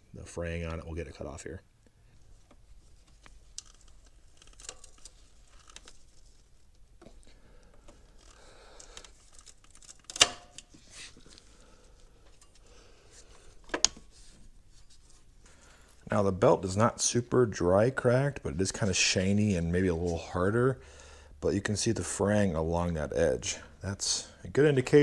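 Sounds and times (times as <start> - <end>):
rubber belt rubbing and clicking: 2.3 - 11.5.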